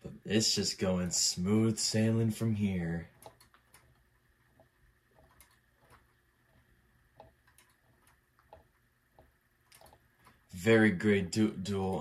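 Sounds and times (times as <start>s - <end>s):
faint steady high whine: 0.0s - 12.0s
metallic ticks and clicks of desk toys: 2.8s - 10.6s.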